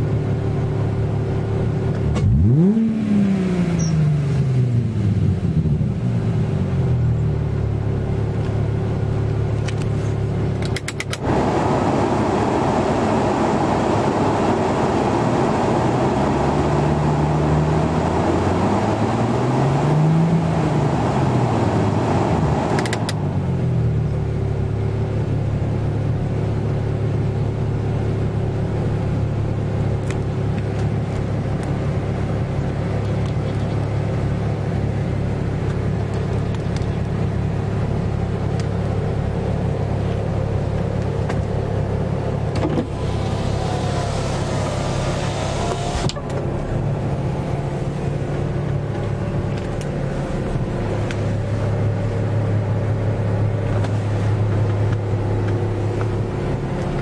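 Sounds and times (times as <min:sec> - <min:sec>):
car engine at low revs: 0:00.0 - 0:57.0
click: 0:10.6 - 0:11.2, 0:22.8 - 0:23.2
road noise rushing: 0:30.7 - 0:57.0.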